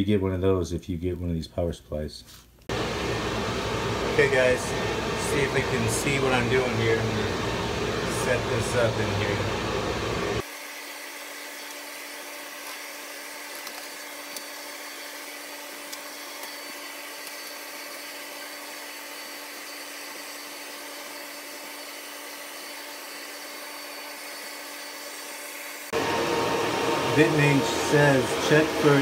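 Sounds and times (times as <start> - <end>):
cooling fans whirring: 2.7 - 29.0.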